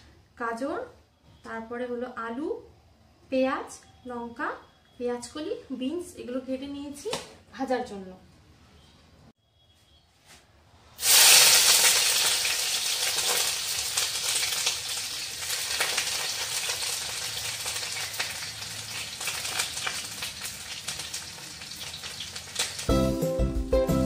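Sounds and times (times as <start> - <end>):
vegetables sizzling in hot oil: 11.0 - 22.9.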